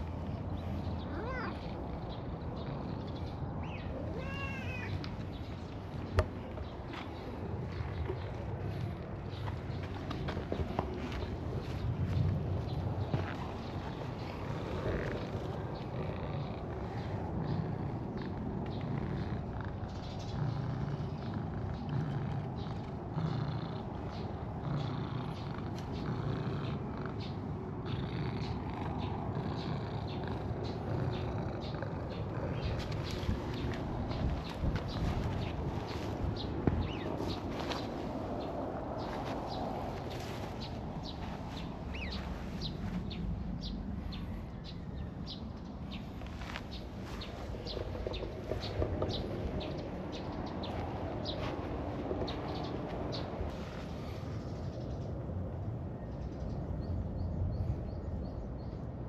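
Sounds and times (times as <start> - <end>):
cat purring: 0.0 - 4.8, 5.4 - 43.2
bird chirping: 0.0 - 55.1.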